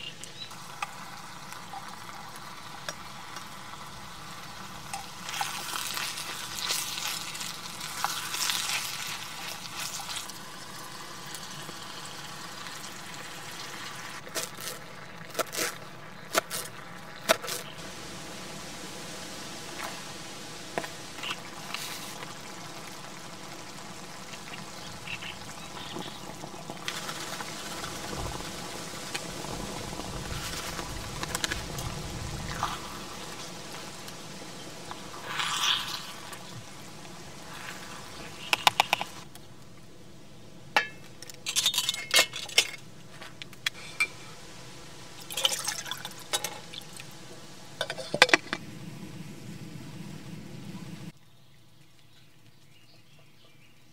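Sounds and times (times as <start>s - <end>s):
vegetables sizzling in a pan: 0.0s - 39.3s, 43.8s - 48.0s
spatula stirring and scraping: 4.9s - 10.4s
metal cookware clinks: 40.8s - 42.8s.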